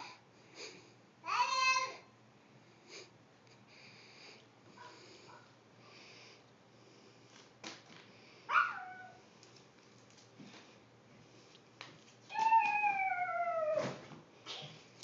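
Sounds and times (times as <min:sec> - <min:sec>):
child squealing: 0:01.3 - 0:02.0.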